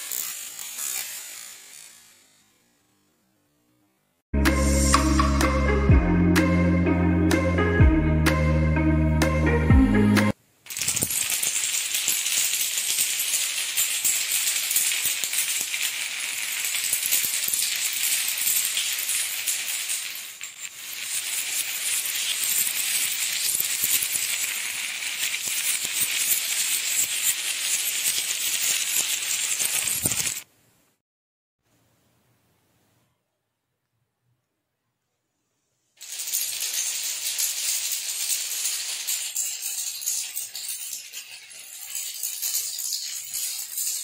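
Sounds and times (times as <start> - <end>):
dominoes toppling on tile floor: 10.7 - 30.5, 36.0 - 44.0.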